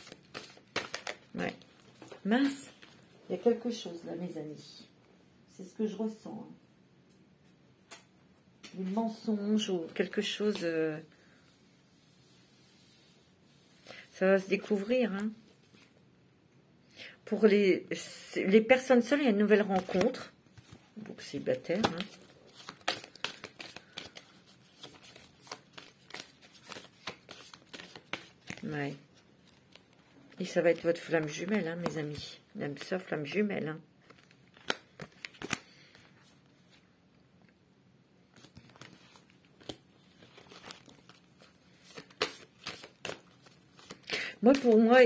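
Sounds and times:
cards being shuffled: 0.0s - 3.0s, 19.6s - 33.0s, 34.0s - 36.1s, 38.3s - 45.0s.

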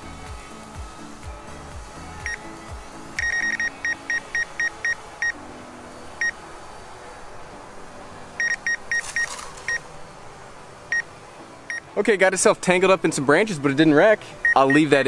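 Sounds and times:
short high warning beeps: 3.2s - 5.0s.

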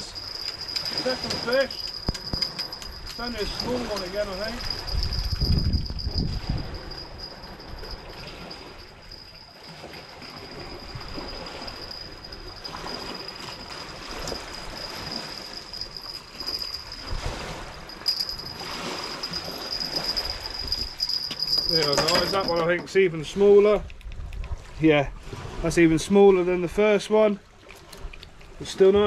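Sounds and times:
cricket trilling: 0.0s - 22.7s
sea water washing ashore: 0.0s - 29.0s.

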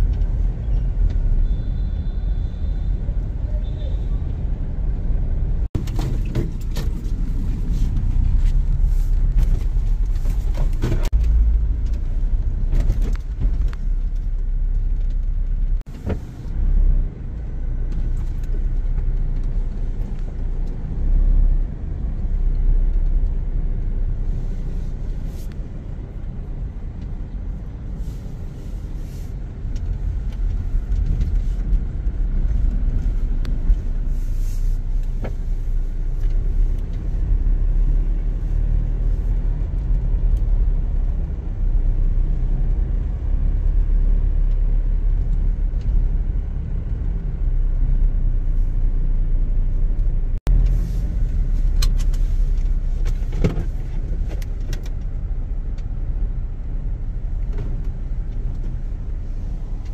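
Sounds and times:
moving vehicle rumble: 0.0s - 59.9s.

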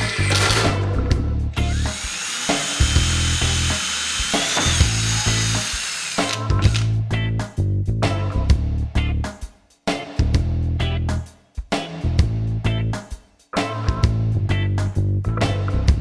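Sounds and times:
cordless drill boring: 0.0s - 0.9s, 1.6s - 6.9s
background music with bass beat: 6.4s - 16.0s.

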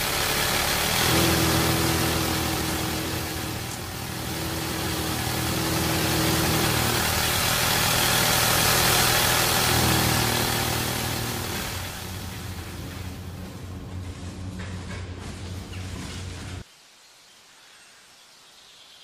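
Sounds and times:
low mechanical hum: 0.0s - 16.6s.

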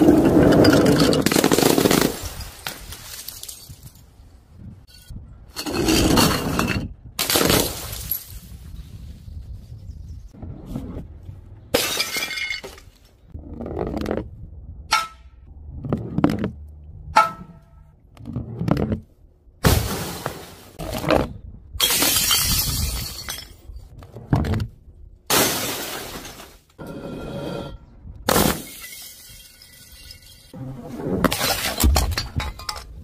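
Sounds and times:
glass smashing: 11.8s - 12.8s, 21.8s - 23.6s, 28.3s - 30.6s.

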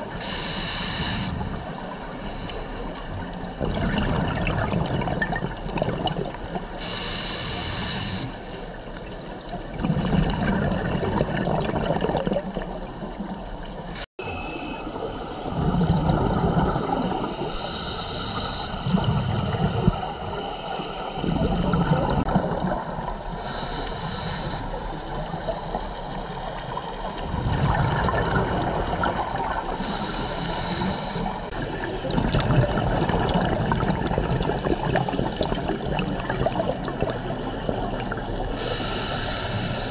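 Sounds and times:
regulator hissing inhale: 0.1s - 3.1s, 6.7s - 8.8s, 17.2s - 21.2s, 23.3s - 25.0s, 29.7s - 31.6s, 38.5s - 39.9s
gurgling exhaled bubbles: 3.2s - 6.9s, 9.1s - 13.8s, 14.8s - 23.6s, 24.8s - 39.9s.

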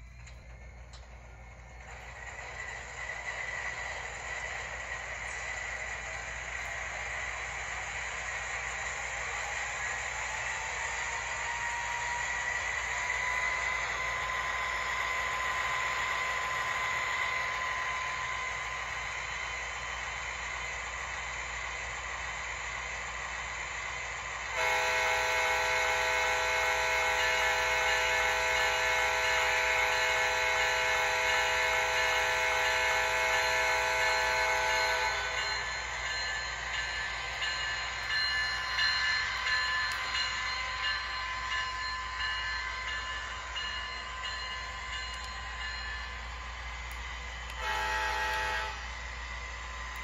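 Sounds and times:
model locomotive engine: 0.0s - 50.0s
model locomotive air horn: 24.5s - 35.5s, 47.5s - 49.0s.

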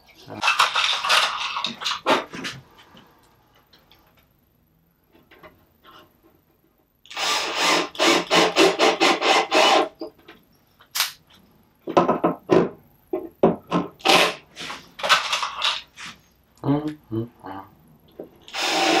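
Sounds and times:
cordless drill short bursts: 7.1s - 9.9s, 18.5s - 19.0s.

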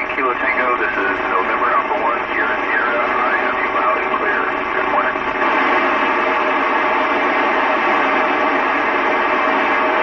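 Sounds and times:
weak voice over radio: 0.0s - 5.5s
radio static hiss: 0.0s - 10.0s.

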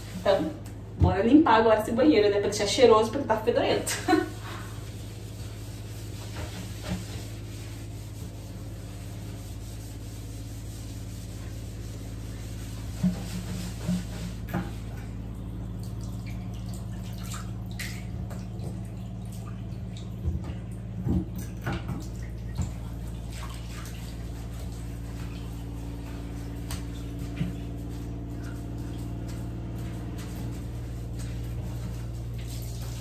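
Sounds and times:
sponge scrubbing: 0.0s - 1.7s, 2.9s - 33.0s
steady low hum: 0.0s - 33.0s
water splashing: 9.7s - 33.0s.

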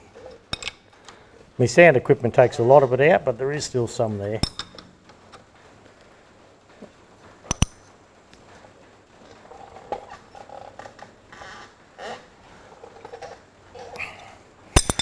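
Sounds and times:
faint creaking: 0.0s - 14.6s
spanners clinking on bolt: 0.5s - 0.9s, 14.7s - 15.0s.

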